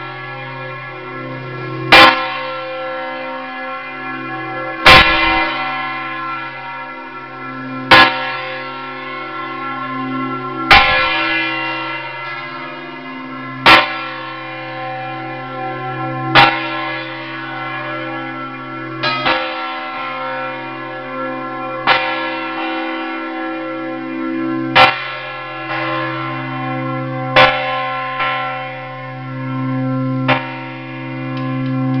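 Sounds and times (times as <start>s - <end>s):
church bell striking loudly: 0.0s - 32.0s
ringing hum of bells: 0.0s - 32.0s
fainter bell strikes: 3.7s - 6.1s.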